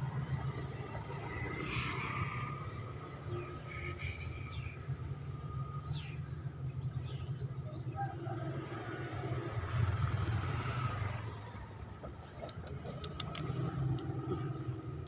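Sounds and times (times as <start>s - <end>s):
traffic engine rumble: 0.0s - 15.0s
faint clicks: 12.2s - 14.1s.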